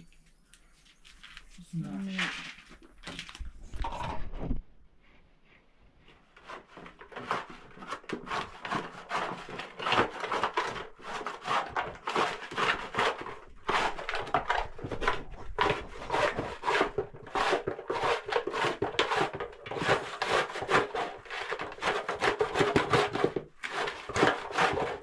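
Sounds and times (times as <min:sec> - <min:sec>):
rapid scraping strokes: 0:06.4 - 0:25.0.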